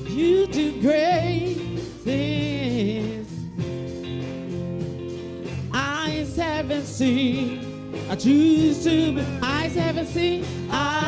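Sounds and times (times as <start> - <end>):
woman singing into a microphone: 0.0 - 3.4, 5.8 - 11.0
sustained instrumental chords: 0.0 - 11.0.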